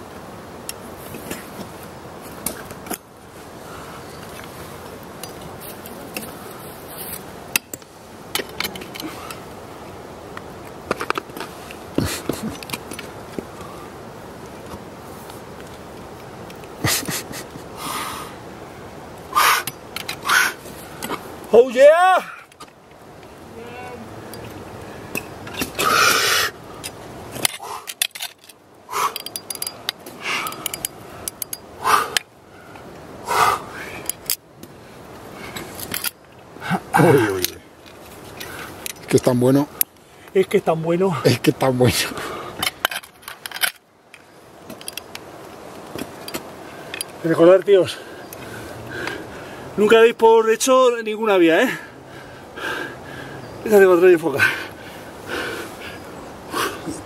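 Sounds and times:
climber breathing hard: 17.7s - 18.4s, 19.3s - 21.2s, 25.0s - 26.6s, 27.4s - 28.0s, 28.9s - 29.5s, 30.1s - 34.2s, 47.9s - 49.8s, 51.7s - 53.6s, 54.4s - 57.0s
forceful exhalations: 19.3s - 21.2s, 25.6s - 26.6s, 27.4s - 28.0s, 28.9s - 29.3s, 31.8s - 34.1s, 54.4s - 57.0s.

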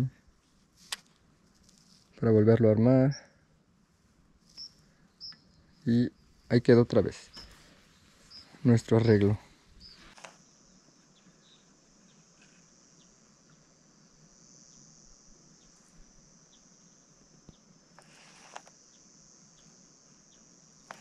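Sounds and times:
high-pitched insect buzz: 4.4s - 21.0s.

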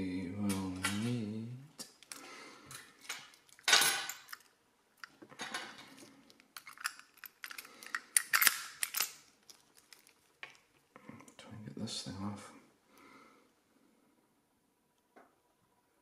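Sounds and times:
metal tool scraping lock cylinder: 6.6s - 9.2s.

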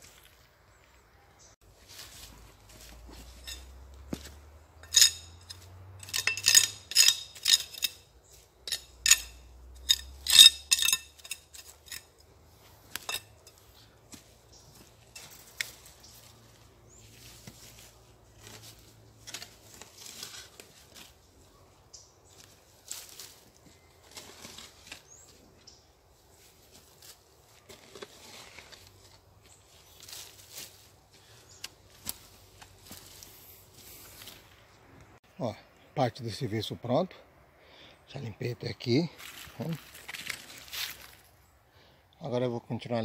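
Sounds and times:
hoe scraping soil: 1.8s - 21.2s, 22.8s - 25.4s, 26.5s - 34.4s.

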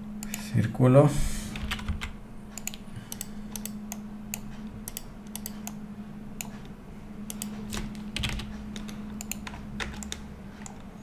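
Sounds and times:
steady low hum: 0.0s - 11.0s
keyboard and mouse clicking: 1.6s - 5.8s, 7.3s - 10.9s.

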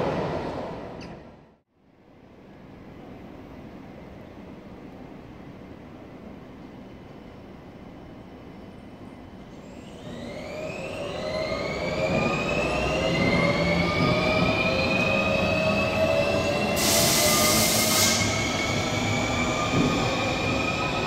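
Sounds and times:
metro train whine: 2.1s - 21.0s
short burst of hiss: 16.8s - 18.4s.

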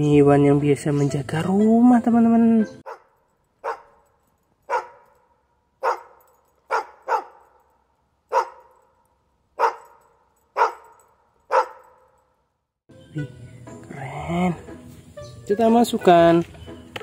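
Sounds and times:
small dog barking: 2.8s - 4.0s, 4.7s - 5.1s, 5.8s - 7.6s, 8.3s - 8.8s, 9.6s - 12.2s.

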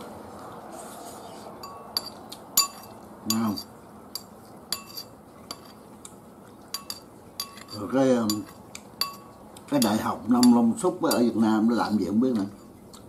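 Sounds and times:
metal spoon clinking on ceramic: 1.6s - 5.8s, 6.7s - 11.4s.

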